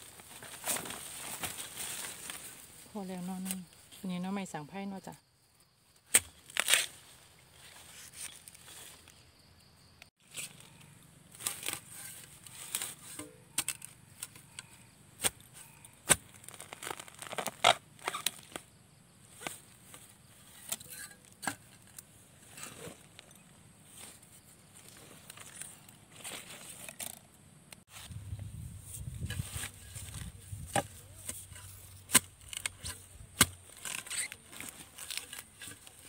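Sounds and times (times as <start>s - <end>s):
dry leaves crackling and rustling: 10.2s - 13.0s
blade chopping bamboo: 32.0s - 35.8s.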